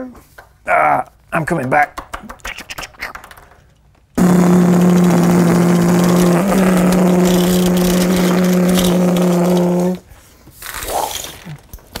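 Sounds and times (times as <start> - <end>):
loud motor-like drone with hiss: 4.2 - 10.0.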